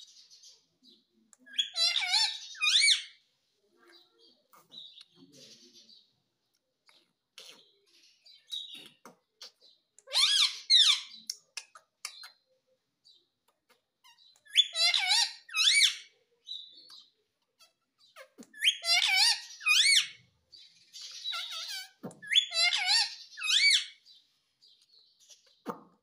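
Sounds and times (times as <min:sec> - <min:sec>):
parakeet calling: 0:01.5 - 0:03.2, 0:09.4 - 0:11.2, 0:14.0 - 0:16.1, 0:17.6 - 0:20.2, 0:20.9 - 0:24.0.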